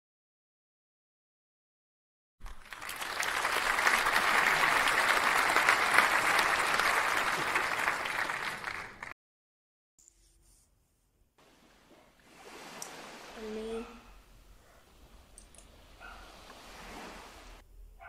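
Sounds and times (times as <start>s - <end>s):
crowd applauding: 2.4s - 9.2s.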